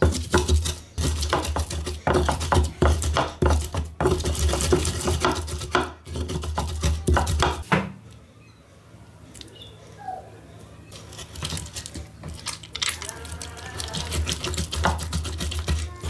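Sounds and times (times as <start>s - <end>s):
wooden pestle knocking on clay bowl: 0.0s - 7.7s, 13.2s - 16.0s.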